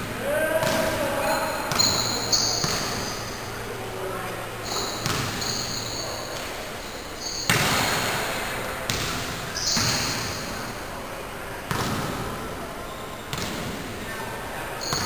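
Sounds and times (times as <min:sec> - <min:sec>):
basketball thudding with hall echo: 0:00.0 - 0:03.8, 0:04.6 - 0:10.8, 0:11.7 - 0:12.4, 0:13.3 - 0:13.9, 0:14.8 - 0:15.0.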